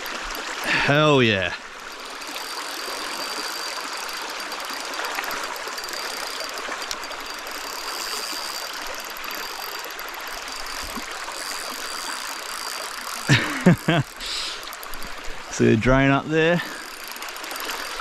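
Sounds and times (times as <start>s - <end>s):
stream water flowing: 0.0s - 18.0s.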